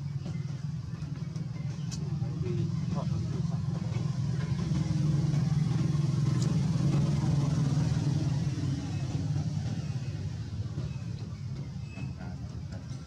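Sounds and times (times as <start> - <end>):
motor vehicle engine humming: 0.0 - 13.0.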